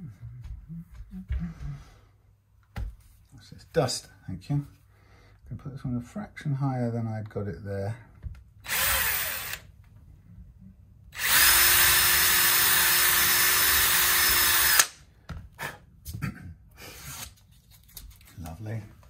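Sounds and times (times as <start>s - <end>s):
drill knocking down: 8.6s - 9.6s, 11.2s - 15.0s
cordless drill boring into wood: 8.6s - 9.7s, 11.2s - 15.0s.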